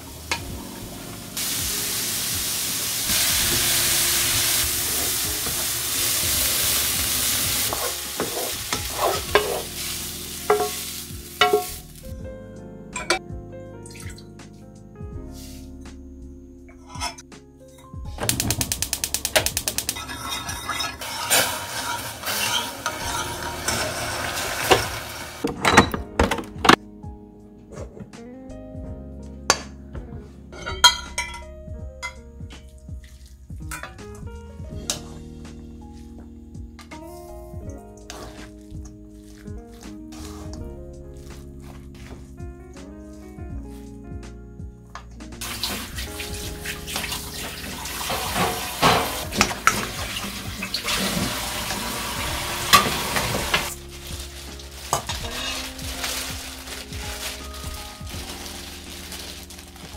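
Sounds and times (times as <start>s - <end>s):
soft background music: 0.0s - 59.9s
rice paddle scraping metal bowl: 6.6s - 11.8s, 19.7s - 25.2s.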